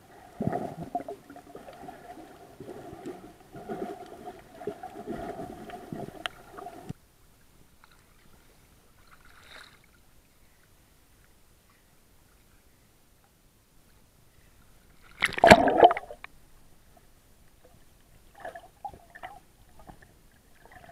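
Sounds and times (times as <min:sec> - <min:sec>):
muffled underwater rumbling: 0:00.0 - 0:06.9
faint hiss: 0:00.0 - 0:15.2
clicks and knocks underwater: 0:15.0 - 0:16.4.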